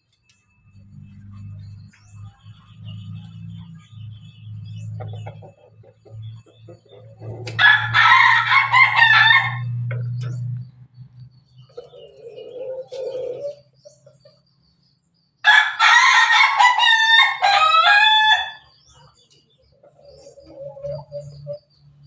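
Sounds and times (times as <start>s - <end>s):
rooster crowing: 7.2s - 10.0s, 15.4s - 18.8s.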